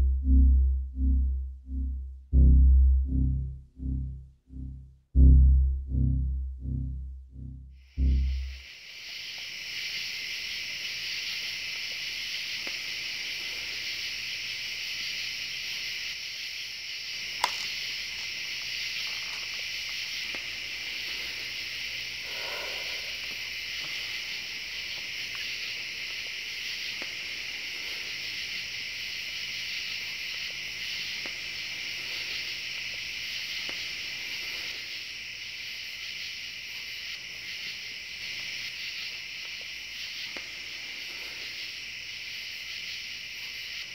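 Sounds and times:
crickets chirping: 0:00.0 - 0:43.9
sharp click: 0:17.4 - 0:17.7.

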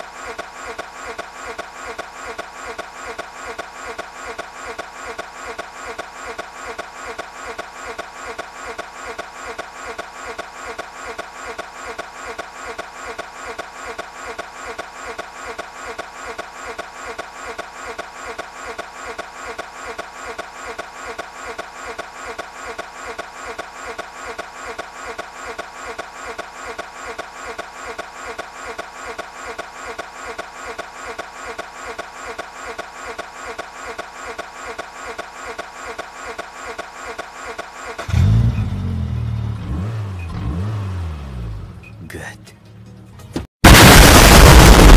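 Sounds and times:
car starter cranking engine: 0:37.0 - 0:40.5.

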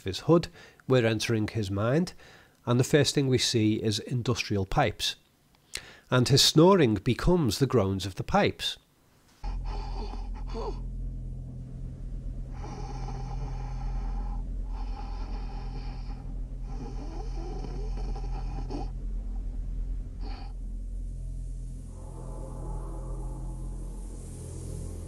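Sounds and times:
man snoring: 0:09.4 - 0:10.9, 0:12.5 - 0:19.0, 0:20.2 - 0:20.6
low hazy sound: 0:09.4 - 0:25.0
steady low drone: 0:09.4 - 0:25.0.

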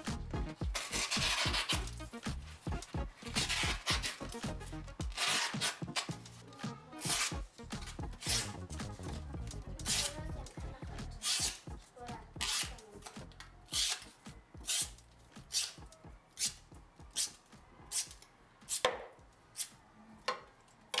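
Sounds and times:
knife slicing cardboard: 0:00.8 - 0:02.4, 0:03.2 - 0:06.2, 0:07.0 - 0:09.1, 0:09.8 - 0:10.2, 0:11.2 - 0:11.6.

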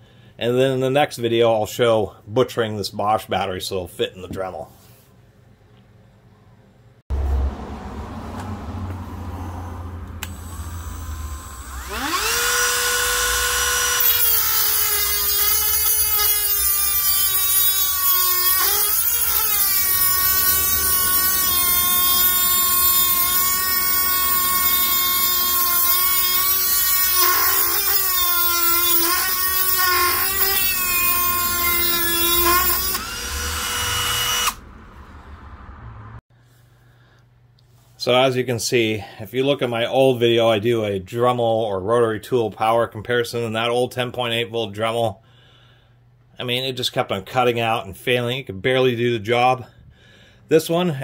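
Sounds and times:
rotary tool whine: 0:09.5 - 0:34.6.

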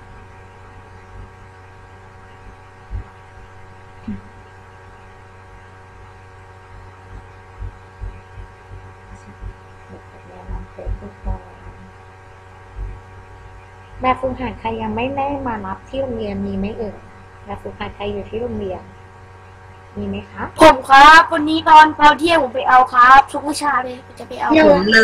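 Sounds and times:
electrical hum: 0:00.0 - 0:25.0
faint voice: 0:23.4 - 0:25.0.

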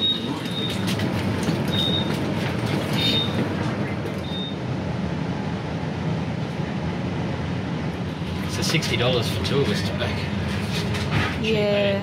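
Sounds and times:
door-warning beep: 0:00.0 - 0:01.0, 0:01.7 - 0:03.6, 0:04.2 - 0:04.6
train low hum: 0:00.0 - 0:12.0.

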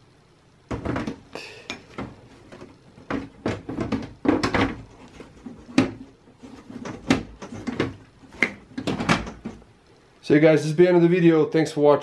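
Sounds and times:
metal panel knocking and scraping: 0:01.9 - 0:09.6.

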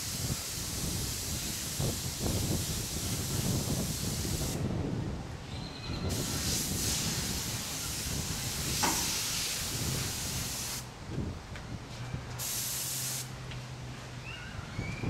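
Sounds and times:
airbrush spraying hiss: 0:00.0 - 0:04.6, 0:06.1 - 0:10.9, 0:12.4 - 0:13.3.

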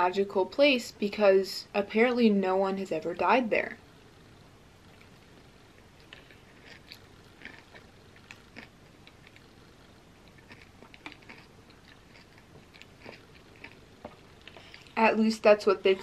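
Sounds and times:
person chewing: 0:06.0 - 0:09.6, 0:10.2 - 0:15.0.

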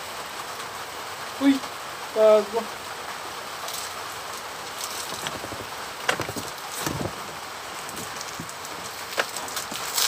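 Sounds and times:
rain hissing: 0:00.0 - 0:10.0
faint knocks and clicks: 0:05.1 - 0:07.1.

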